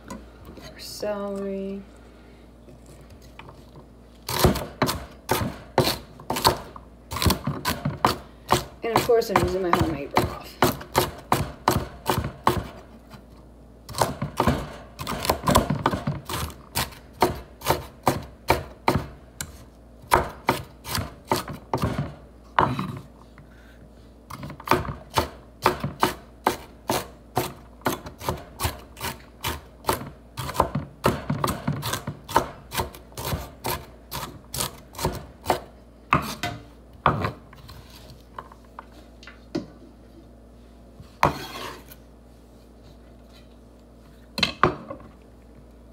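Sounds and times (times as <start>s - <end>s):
knife chopping on wooden board: 4.3s - 12.9s, 13.9s - 22.9s, 24.3s - 37.4s, 41.2s - 41.8s.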